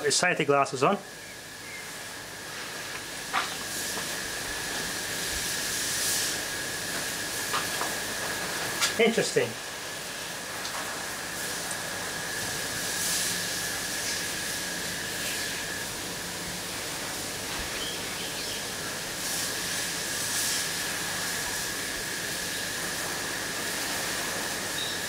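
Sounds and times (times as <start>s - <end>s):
electric arc hissing and whining: 0.0s - 25.0s.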